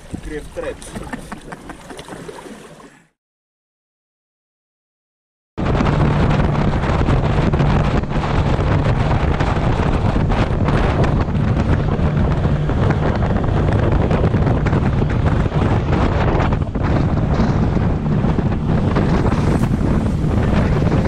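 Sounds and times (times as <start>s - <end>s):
wind buffeting microphone: 0.0s - 1.6s, 5.6s - 21.0s
outboard motors droning: 5.6s - 21.0s.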